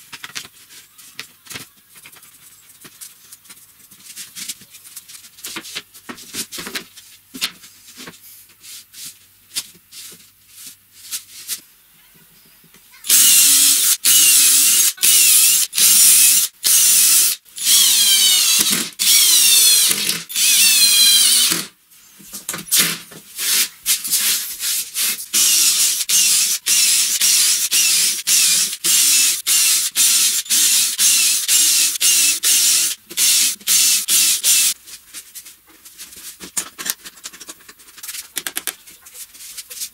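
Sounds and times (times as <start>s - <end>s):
cordless drill driving screws: 13.1s - 21.7s, 25.4s - 34.8s.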